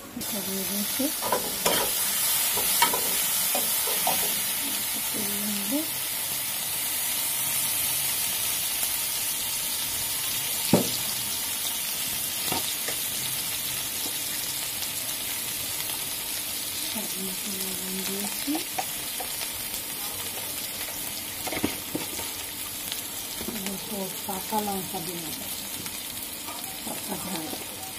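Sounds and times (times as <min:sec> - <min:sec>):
onions sizzling in pan: 0:00.0 - 0:27.9
metal spatula knocking on pan: 0:10.7 - 0:11.0.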